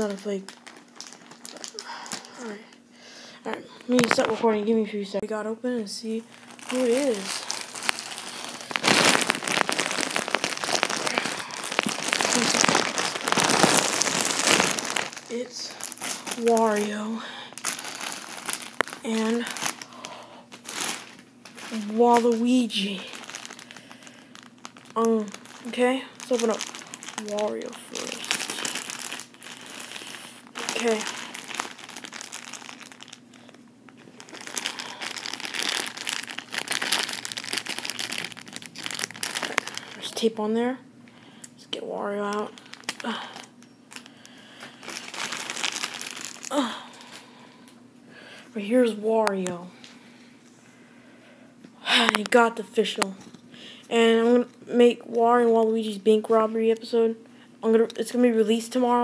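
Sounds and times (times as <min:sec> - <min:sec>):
plastic bag crinkling: 0:00.0 - 0:02.8, 0:03.7 - 0:04.7, 0:06.0 - 0:40.7, 0:41.7 - 0:47.8, 0:48.6 - 0:50.0, 0:51.8 - 0:56.4.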